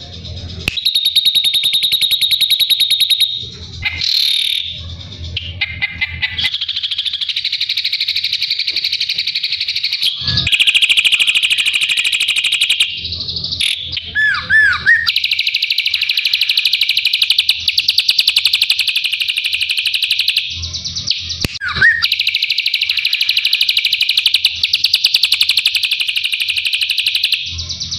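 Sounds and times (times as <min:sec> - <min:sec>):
bird rapid chatter: 0:00.0 - 0:27.9
downward-sliding bird whistles: 0:14.0 - 0:17.8, 0:21.0 - 0:24.2.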